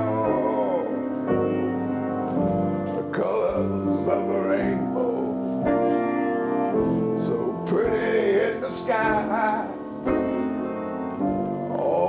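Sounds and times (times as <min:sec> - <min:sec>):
man vocalising wordlessly: 0:00.0 - 0:01.0, 0:02.9 - 0:05.6, 0:07.2 - 0:09.9, 0:11.7 - 0:12.0
piano ballad chords: 0:00.0 - 0:12.0.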